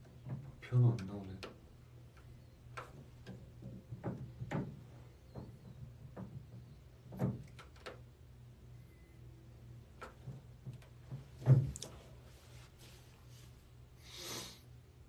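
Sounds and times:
short clicks and light knocks: 0:00.0 - 0:08.2.

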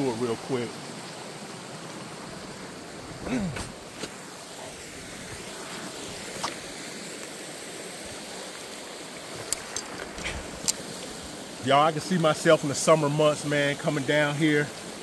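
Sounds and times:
creek water running over rock: 0:00.0 - 0:15.0.

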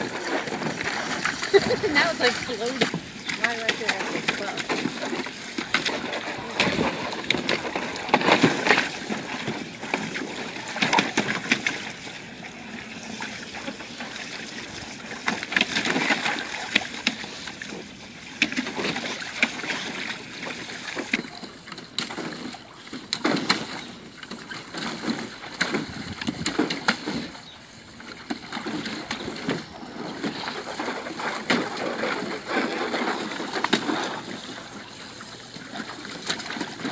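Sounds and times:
dog splashing in water: 0:00.0 - 0:27.6.

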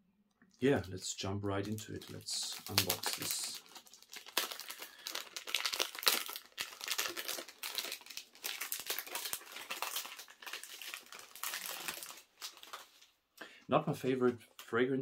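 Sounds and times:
packaging crinkling and crackling: 0:01.6 - 0:13.2.

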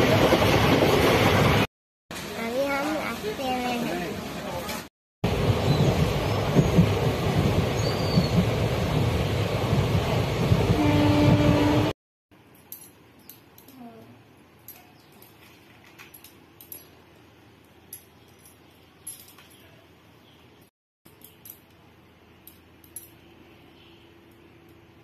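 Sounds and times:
train rumbling: 0:00.0 - 0:12.0
faint small clinks: 0:12.4 - 0:20.0, 0:21.1 - 0:24.9.

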